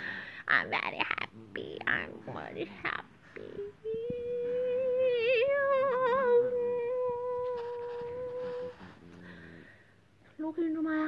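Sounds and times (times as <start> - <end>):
person humming a held note: 3.4 - 9.0.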